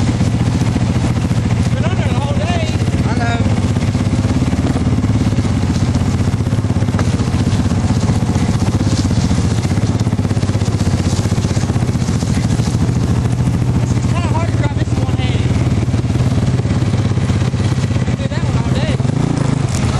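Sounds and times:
utility vehicle engine drone: 0.0 - 19.9.

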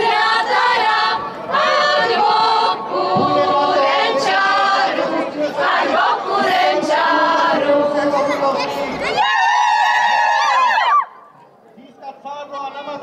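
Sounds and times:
women singing folk song: 0.0 - 8.4.

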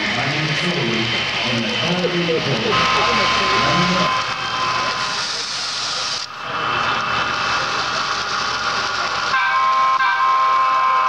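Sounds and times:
hall background noise: 0.0 - 11.0
model locomotive whirring hiss: 0.0 - 11.0.

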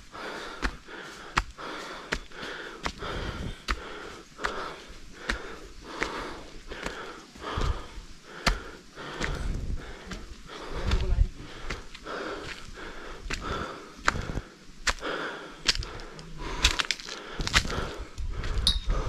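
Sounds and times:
person panting hard: 0.0 - 19.0.

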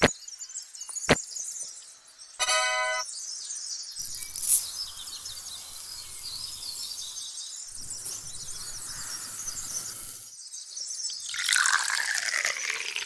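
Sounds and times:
sand pouring into a metal can: 4.3 - 5.1.

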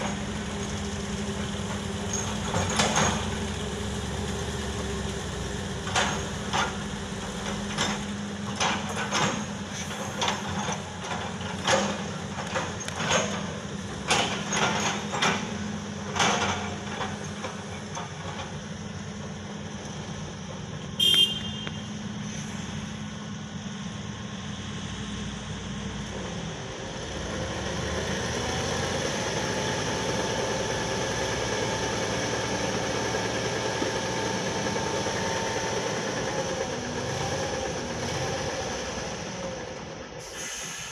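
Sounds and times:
diesel truck engine running: 0.0 - 40.2
truck horn toot: 21.0 - 22.0.

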